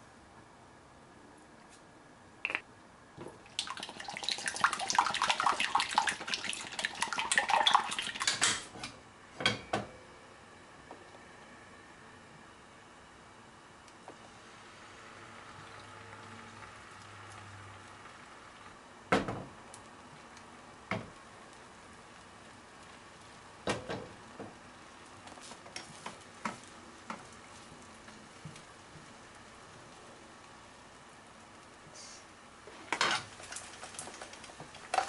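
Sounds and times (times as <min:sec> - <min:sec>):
egg sizzling in a pan: 0:03.4 - 0:08.7, 0:14.2 - 0:18.8, 0:19.6 - 0:35.0.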